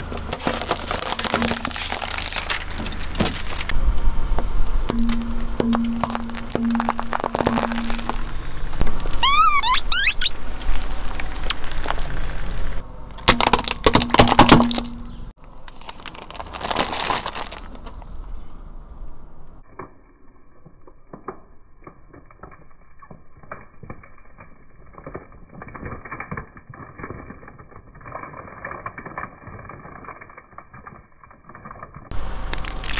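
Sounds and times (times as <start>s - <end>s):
lollipops cracking under car tyre: 0.0s - 18.4s, 19.6s - 32.9s
high falling squeaks: 9.1s - 11.8s.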